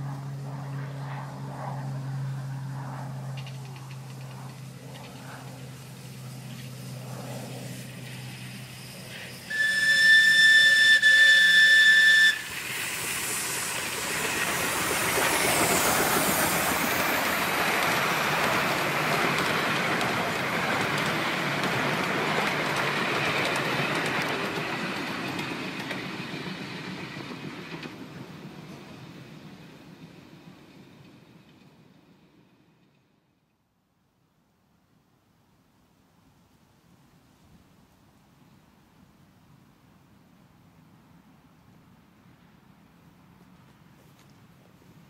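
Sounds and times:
wheels rumbling on rails: 0:01.9 - 0:33.0
steam hissing: 0:07.6 - 0:27.2
steam whistle blast: 0:09.4 - 0:13.0.

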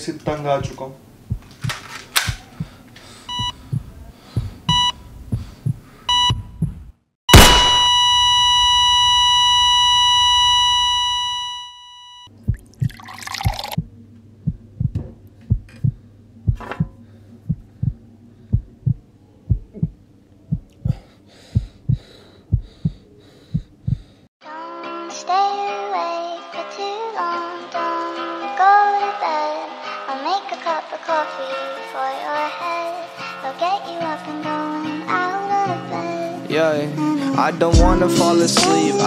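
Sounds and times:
heartbeat thumps: 0:00.6 - 0:07.0, 0:12.4 - 0:24.2, 0:37.8 - 0:38.1
high ringing tone: 0:07.3 - 0:12.3
low hum: 0:12.3 - 0:24.0.

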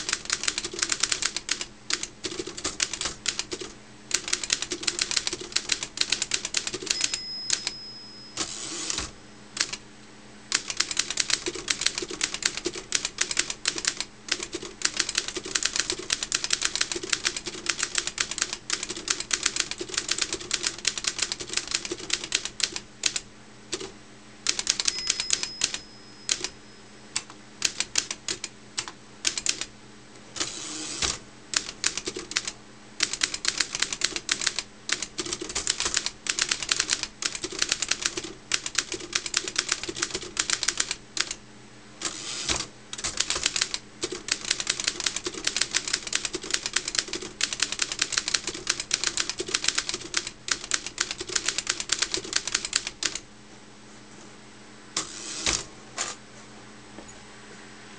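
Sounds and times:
typewriter keystroke clacks: 0:00.0 - 0:07.7, 0:10.5 - 0:23.9, 0:24.5 - 0:26.5, 0:27.2 - 0:29.7, 0:31.0 - 0:41.4, 0:42.5 - 0:53.2
typewriter carriage sliding rattle: 0:55.0 - 0:56.2.

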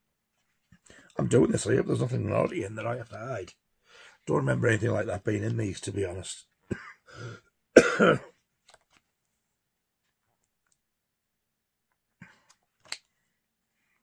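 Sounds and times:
paper rustling: 0:08.6 - 0:09.4.

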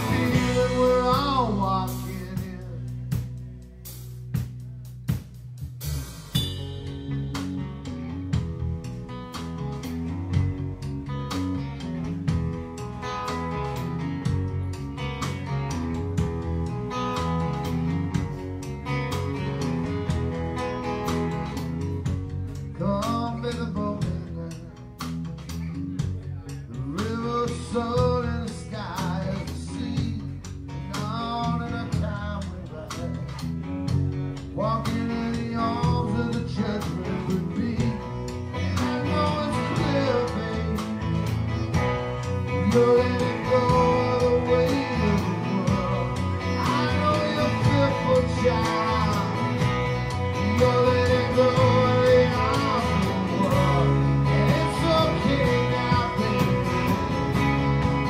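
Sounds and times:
drum kit: 0:00.0 - 0:58.0
electric guitar: 0:00.0 - 0:58.0
strummed acoustic guitar: 0:06.3 - 0:58.0
bending sliding melody line: 0:06.4 - 0:08.4.

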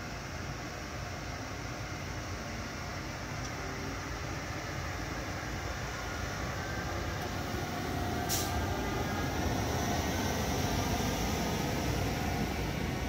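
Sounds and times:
train rolling past rumble: 0:04.3 - 0:13.0.

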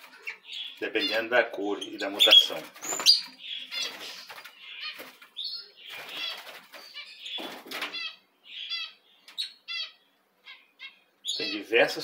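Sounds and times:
parrots chirping and twittering: 0:00.0 - 0:12.0
wing flapping: 0:02.5 - 0:08.0.

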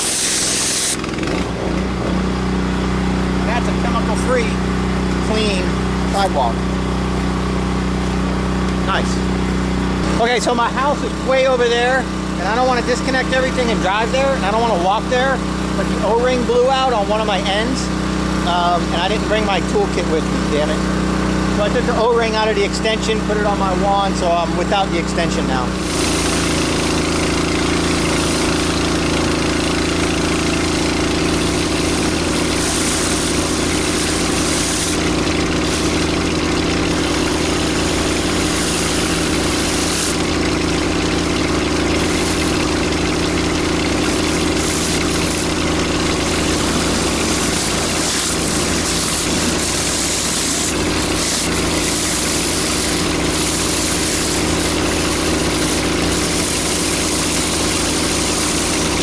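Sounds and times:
water jets hissing on concrete: 0:00.0 - 0:01.1, 0:25.8 - 0:59.0
pressure washer engine running: 0:00.0 - 0:59.0.

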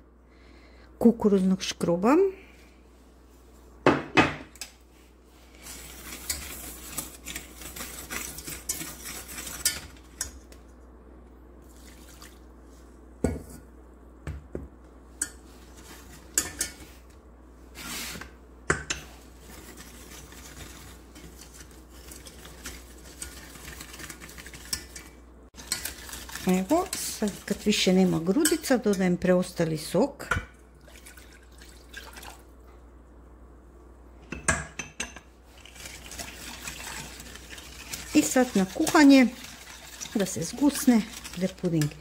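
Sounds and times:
whisk stirring in a saucepan: 0:05.4 - 0:10.6, 0:15.2 - 0:17.0, 0:18.9 - 0:29.6, 0:35.5 - 0:42.0
whisk clinking against pan: 0:18.7 - 0:29.1.

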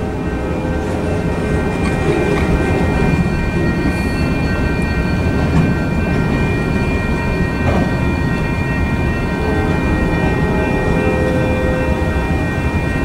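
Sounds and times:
crossing bell ringing: 0:00.0 - 0:13.0
steel wheels rumbling on rail: 0:00.0 - 0:13.0.

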